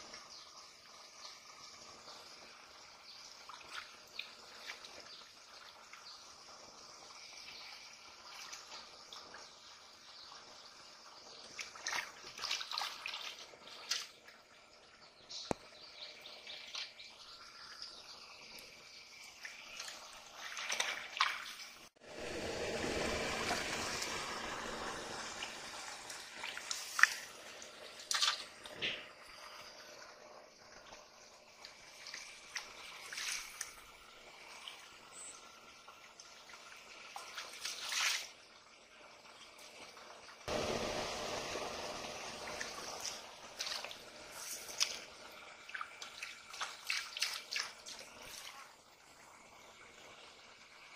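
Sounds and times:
water drips and trickles: 0.0s - 50.9s
muddy water sloshing: 11.4s - 14.4s, 19.3s - 21.9s, 28.0s - 29.0s, 31.6s - 33.9s, 36.4s - 38.4s, 42.4s - 48.8s.

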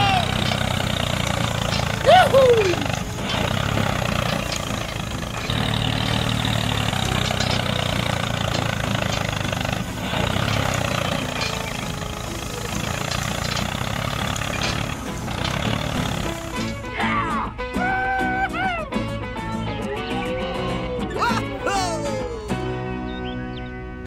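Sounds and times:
tractor engine running: 0.0s - 17.3s.

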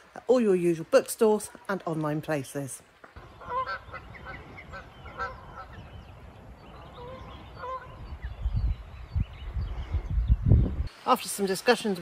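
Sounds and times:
geese honking: 3.2s - 5.8s, 6.9s - 8.0s.

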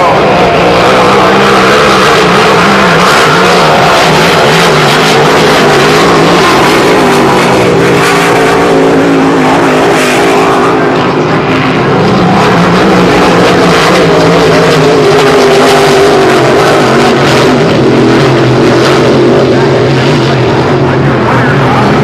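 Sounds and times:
race boat engines roaring: 0.0s - 22.0s.

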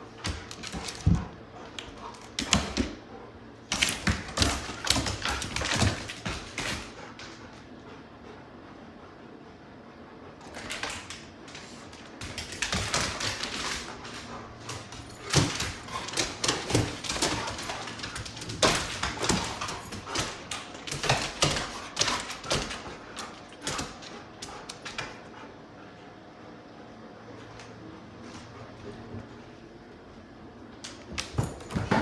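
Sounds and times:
dogs' claws clicking and scrabbling: 0.0s - 7.7s, 10.4s - 25.5s, 30.7s - 32.0s.

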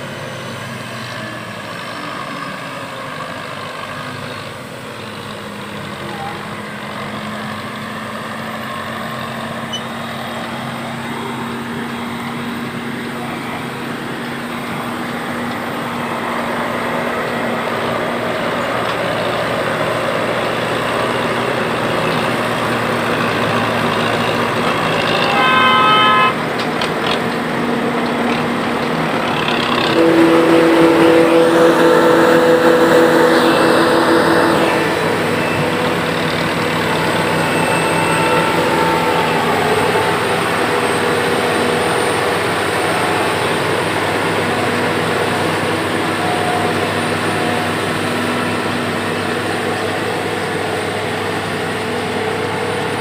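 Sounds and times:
forage harvester engine running: 3.0s - 53.0s
short horn toot: 25.0s - 26.4s, 29.9s - 41.4s.

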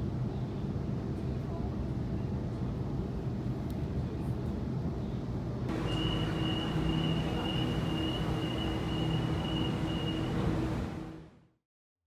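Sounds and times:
train rumbling inside carriage: 0.0s - 11.4s
high even whine: 5.7s - 11.4s
low hum: 5.7s - 11.5s.

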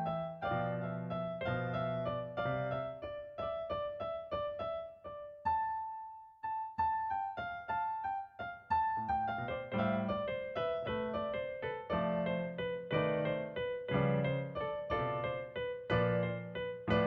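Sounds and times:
solo piano melody: 0.0s - 17.0s.

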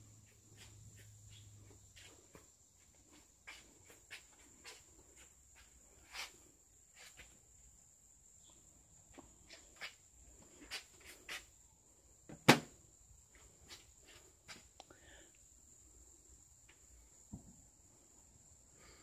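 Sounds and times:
faint high-pitched whine: 0.0s - 19.0s
footsteps on concrete: 0.3s - 7.2s.

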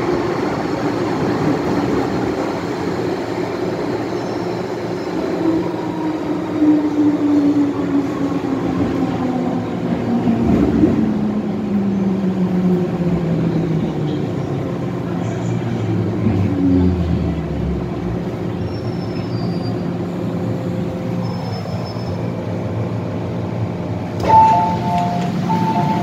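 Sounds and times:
train traction motors whining: 24.0s - 26.0s.

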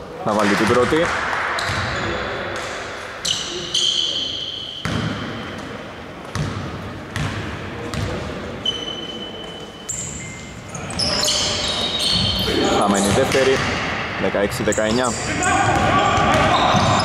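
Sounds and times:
sneakers squeaking on floor: 1.6s - 2.4s, 3.2s - 13.9s, 14.6s - 17.0s.

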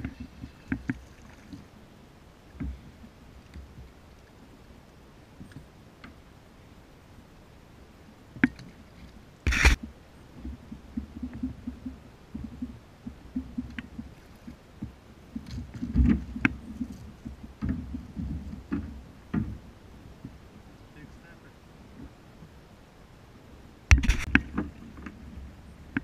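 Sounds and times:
knocks and thumps on plastic hull: 14.8s - 20.4s.

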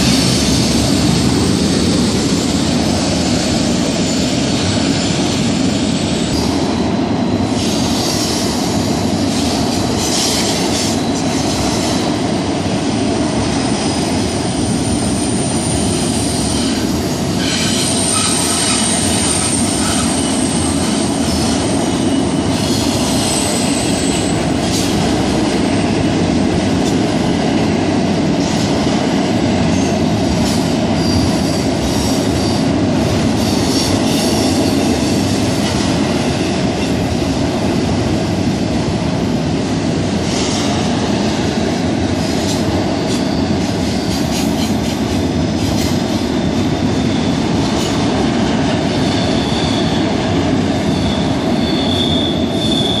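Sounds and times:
train wheels rumbling on rail: 0.0s - 53.0s
high wheel squeals: 48.9s - 50.0s, 50.8s - 53.0s.

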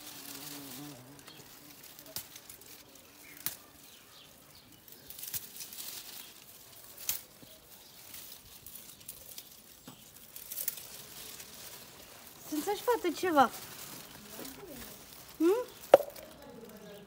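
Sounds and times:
dry stems snapping: 0.2s - 4.0s, 4.8s - 12.0s, 15.8s - 16.9s
plastic bag crinkling: 4.8s - 17.0s.

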